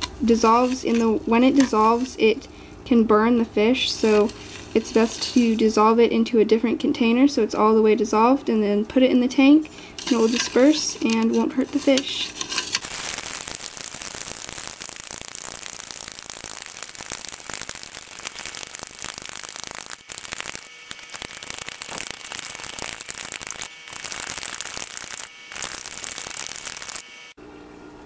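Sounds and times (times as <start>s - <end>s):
spoon stirring salt in a cup: 10.0s - 12.8s.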